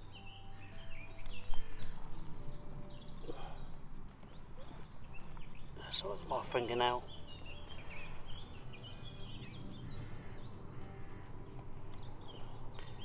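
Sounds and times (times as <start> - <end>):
small birds chirping and singing: 0.0 - 13.0.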